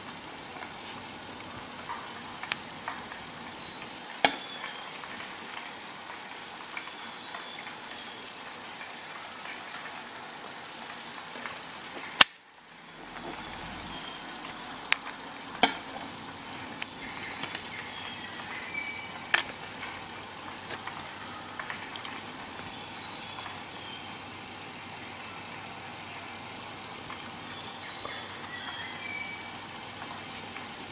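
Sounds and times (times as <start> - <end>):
nutshell cracking: 12.2 - 12.4, 16.7 - 18.5, 19.3 - 19.8.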